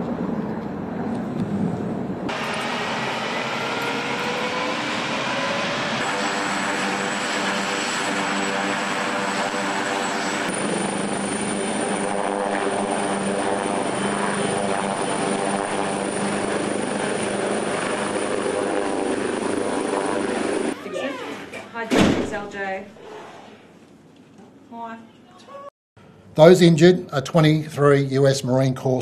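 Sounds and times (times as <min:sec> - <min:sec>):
high turbine whine: 0:00.0 - 0:21.0
helicopter rotor and engine: 0:00.6 - 0:21.0.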